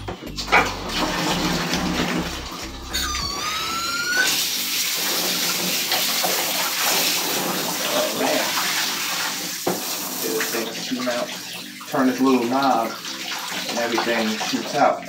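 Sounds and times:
shower sprayer spraying water: 0.3s - 14.8s
brief rising squeal: 0.6s - 4.6s.

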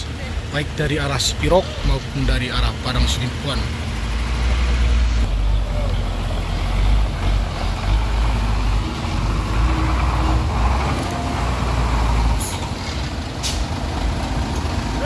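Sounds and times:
truck diesel engine driving past: 0.0s - 15.0s
air brakes hissing: 12.3s - 13.8s.

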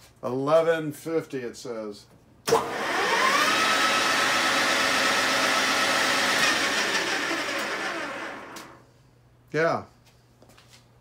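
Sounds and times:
lathe spindle whining: 2.5s - 8.8s.

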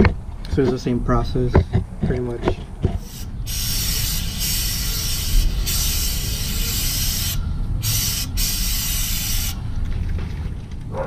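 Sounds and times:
aerosol spray hissing: 3.0s - 9.6s.

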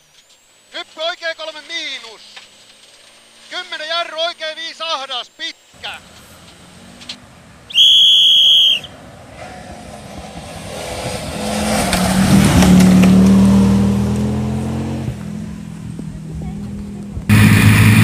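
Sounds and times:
rally car engine passing at speed: 5.8s - 18.0s.

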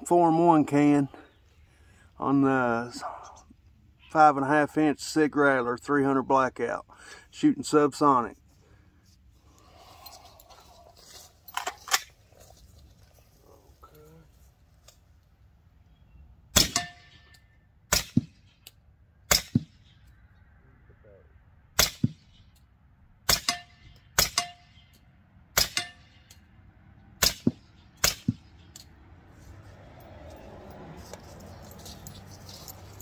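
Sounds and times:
suppressed gunshots: 16.5s - 17.1s, 17.9s - 18.4s, 19.3s - 19.9s, 21.8s - 22.2s, 23.3s - 24.6s, 27.2s - 28.5s.

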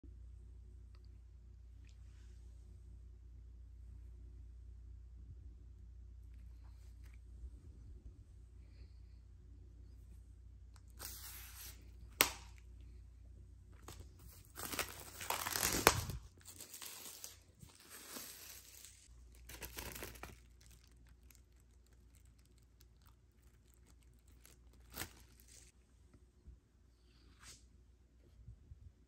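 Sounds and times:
shrink wrap crinkling and tearing: 10.8s - 12.6s, 13.7s - 25.8s.

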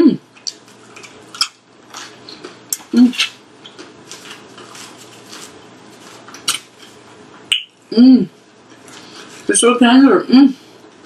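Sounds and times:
chewing and mouth clicks: 0.3s - 5.0s
person humming: 2.9s - 3.3s, 7.9s - 8.4s
cutlery clinking on plate: 6.4s - 7.0s.

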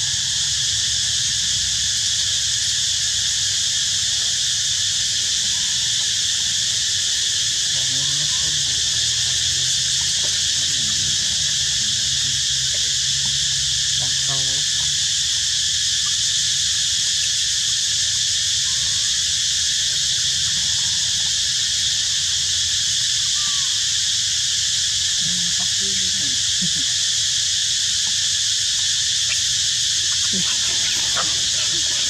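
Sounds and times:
insect chorus buzzing: 0.0s - 32.0s
faint call: 29.2s - 32.0s
faint low hum: 29.2s - 32.0s.

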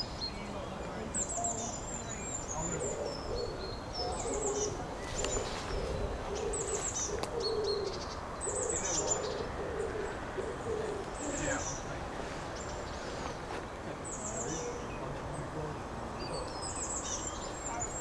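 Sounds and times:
songbirds chirping: 0.0s - 18.0s
low repeated cooing call: 1.4s - 12.1s.

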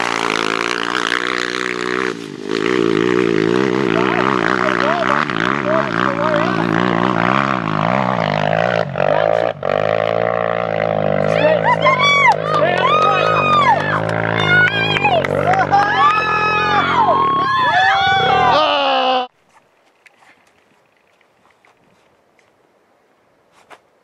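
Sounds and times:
dirt bike engine revving hard: 0.0s - 18.6s.

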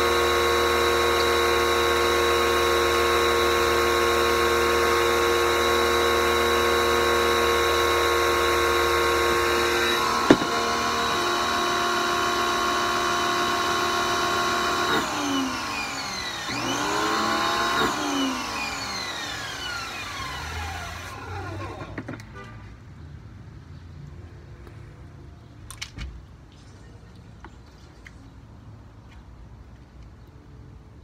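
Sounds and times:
pressure washer motor humming: 0.0s - 22.1s.

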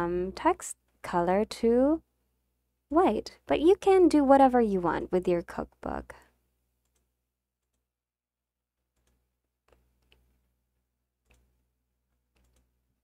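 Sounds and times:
computer mouse clicks: 9.0s - 10.3s, 11.2s - 11.5s, 12.3s - 12.7s.

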